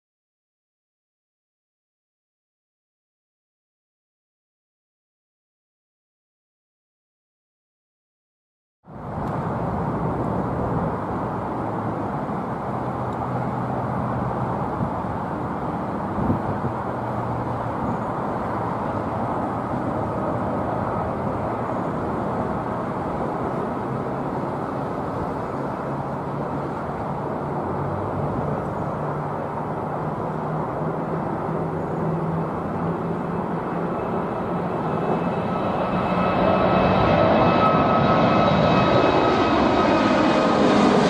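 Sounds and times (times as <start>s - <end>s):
jet engines at takeoff power: 8.9s - 41.0s.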